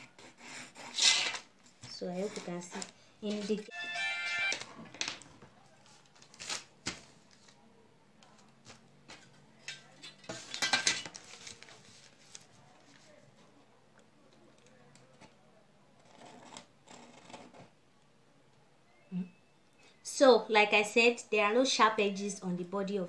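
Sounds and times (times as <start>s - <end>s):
pen scratching on paper: 0.0s - 1.4s, 16.0s - 17.6s.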